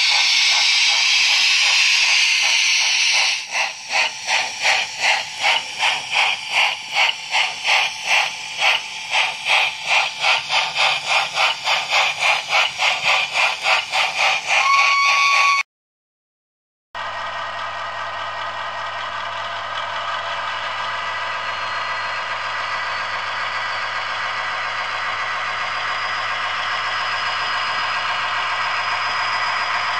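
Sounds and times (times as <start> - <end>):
steam hiss: 0.0 - 15.4
steam locomotive exhaust chuff: 0.0 - 15.6, 17.0 - 29.9
steam whistle: 14.5 - 15.6.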